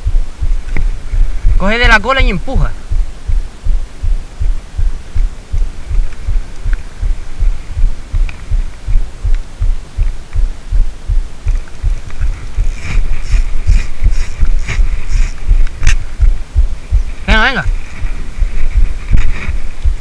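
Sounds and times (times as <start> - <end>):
low rhythmic thumping rumble: 0.0 - 20.0
faint clicks: 5.9 - 10.5.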